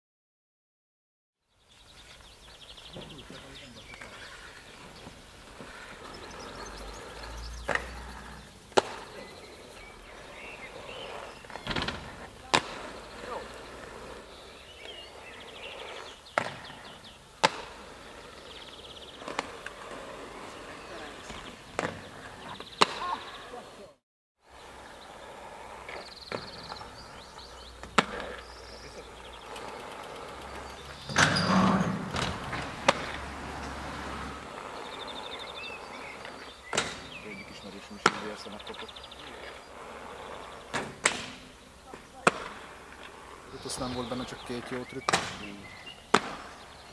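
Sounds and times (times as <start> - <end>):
skate wheels rolling on asphalt: 1.5 - 46.9
skates clacking: 2.9 - 24.0, 24.6 - 46.9
skates clacking on wooden box: 45.0 - 46.6.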